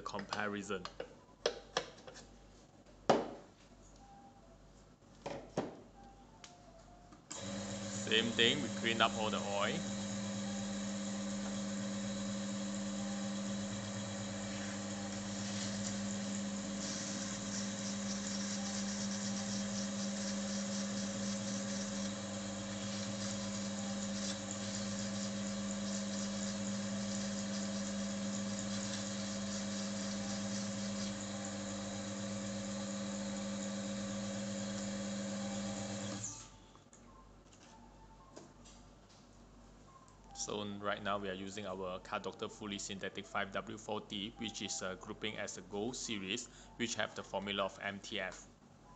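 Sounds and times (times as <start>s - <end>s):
electric motor humming: 7.3s - 36.4s.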